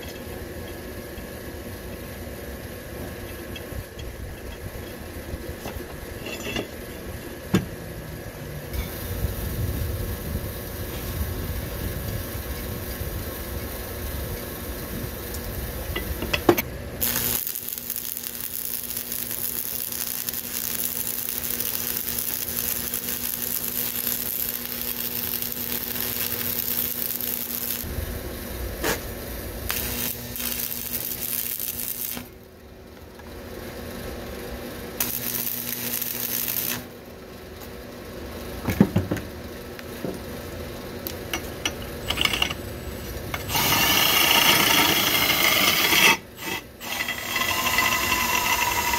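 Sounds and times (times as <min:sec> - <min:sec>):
welding arc crackling and hissing: 0:08.7 - 0:32.5, 0:34.9 - 0:37.0, 0:42.1 - 0:48.9
cordless power tool: 0:17.0 - 0:27.9, 0:29.7 - 0:32.4, 0:35.0 - 0:37.0, 0:43.4 - 0:48.9.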